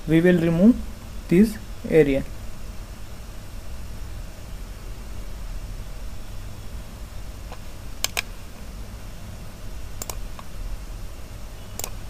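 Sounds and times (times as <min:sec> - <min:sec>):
steady low hum: 0:00.0 - 0:12.0
computer mouse clicks: 0:07.5 - 0:08.3, 0:10.0 - 0:10.5, 0:11.7 - 0:12.0.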